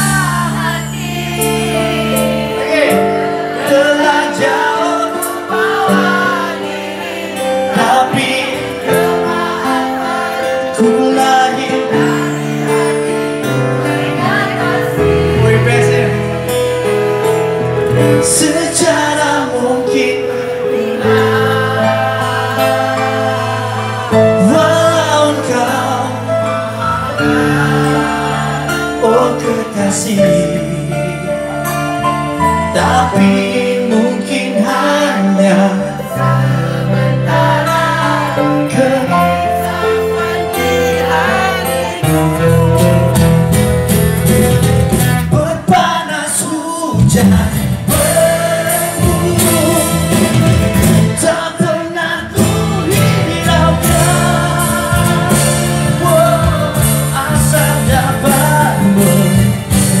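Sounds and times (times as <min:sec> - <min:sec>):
electric bass guitar: 0:00.0 - 0:03.3, 0:39.2 - 0:45.6, 0:46.9 - 0:51.4, 0:52.2 - 1:00.0
man singing: 0:00.0 - 0:06.6, 0:07.3 - 0:16.7, 0:17.9 - 1:00.0
strummed acoustic guitars: 0:00.0 - 1:00.0.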